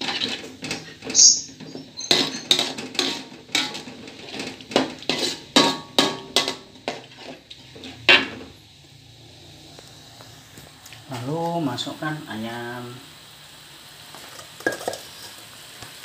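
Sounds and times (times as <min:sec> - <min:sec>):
spatula scraping metal wok: 0:00.0 - 0:08.6, 0:14.1 - 0:15.5.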